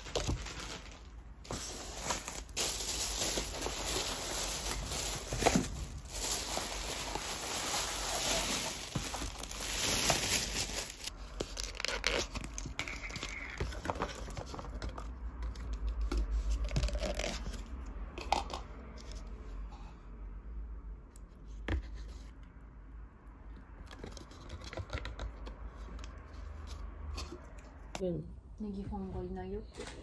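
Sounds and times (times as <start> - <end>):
plastic bag rustling: 0.0 - 13.4.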